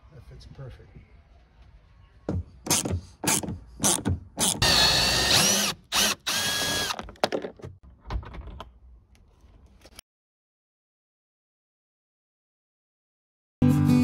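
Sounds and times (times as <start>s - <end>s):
power screwdriver motor: 2.7s - 7.0s.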